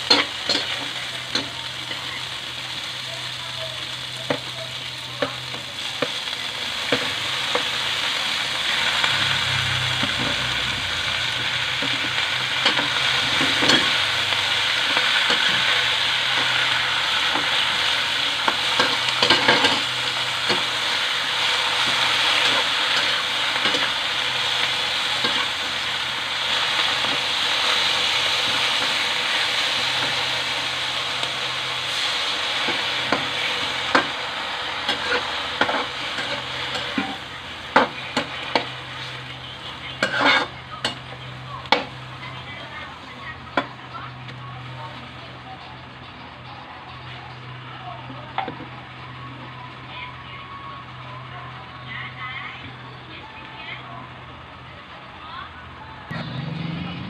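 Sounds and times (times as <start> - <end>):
vegetables sizzling in a wok: 0.0 - 57.0
metal spatula scraping a wok: 40.0 - 40.6.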